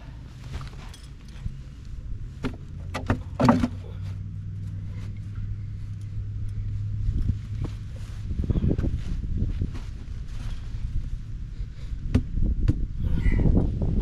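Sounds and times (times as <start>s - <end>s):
engine running low hum: 0.0s - 14.0s.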